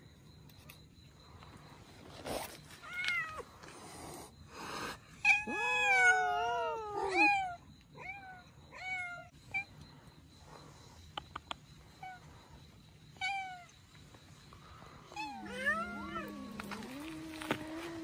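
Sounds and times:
cats yowling: 0:05.2 - 0:09.7, 0:15.1 - 0:18.0.

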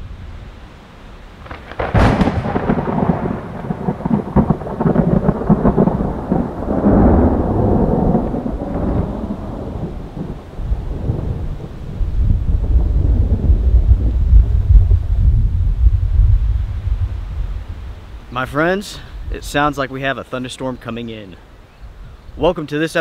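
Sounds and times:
thunder crack and rumble: 0:01.4 - 0:18.0.

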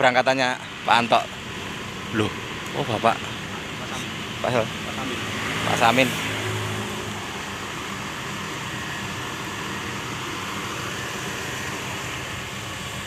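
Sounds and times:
diesel engine idling: 0:00.0 - 0:13.0.

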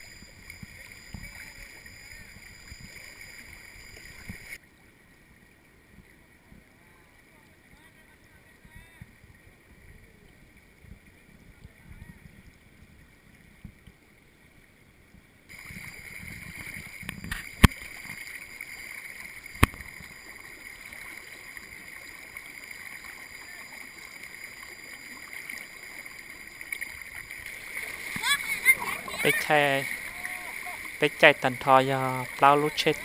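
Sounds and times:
floodwater flowing: 0:00.0 - 0:33.0.

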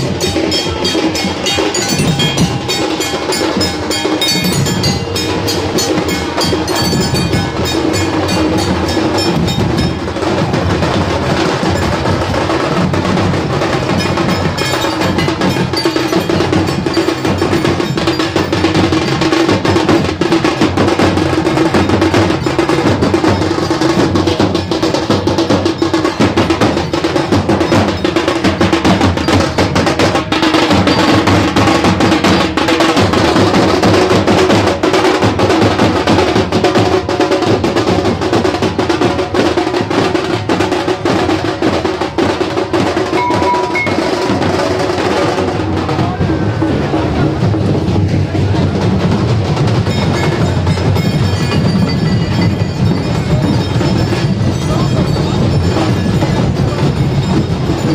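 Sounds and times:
drum band playing: 0:00.0 - 0:57.9
steady held tone: 0:43.1 - 0:44.5.

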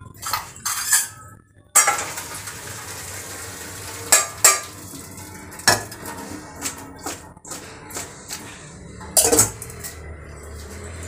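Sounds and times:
steel pot clanking: 0:00.0 - 0:11.0
water pouring into a strainer: 0:02.0 - 0:06.4.

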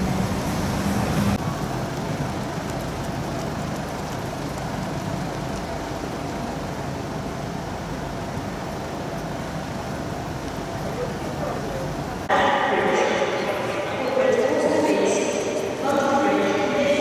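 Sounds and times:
traffic on wet road: 0:00.0 - 0:12.3.

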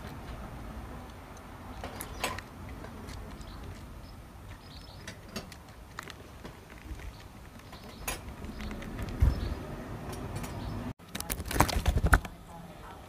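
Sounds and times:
beaks pecking at seed: 0:00.0 - 0:09.8.

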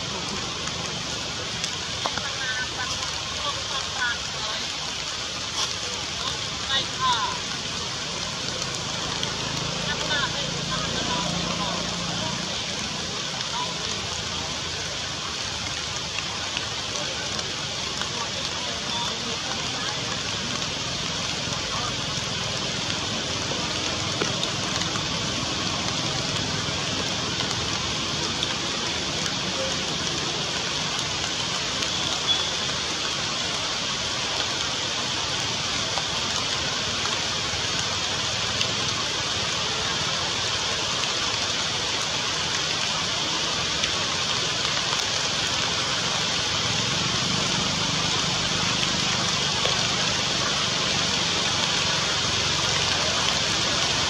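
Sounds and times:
rain falling through trees: 0:00.0 - 0:54.0
water drops ticking: 0:15.5 - 0:34.7.

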